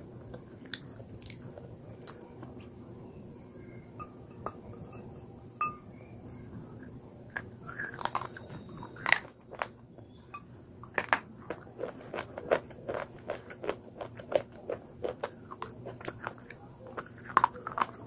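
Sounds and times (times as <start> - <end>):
chewing crunches: 0.3 - 2.6, 7.3 - 10.2, 10.8 - 18.0.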